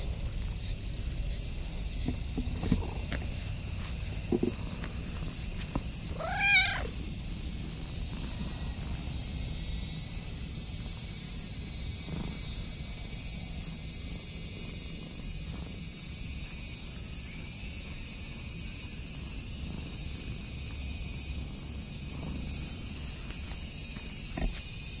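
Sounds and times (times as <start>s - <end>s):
insects chorus: 0.0s - 25.0s
cat meowing: 6.1s - 7.1s.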